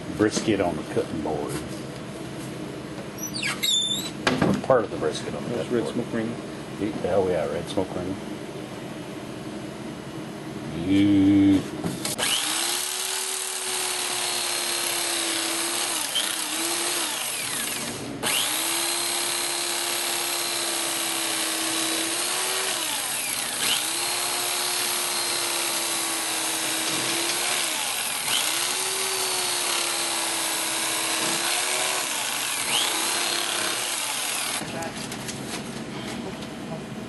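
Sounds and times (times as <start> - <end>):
electric carving knife motor: 12.1 - 34.6.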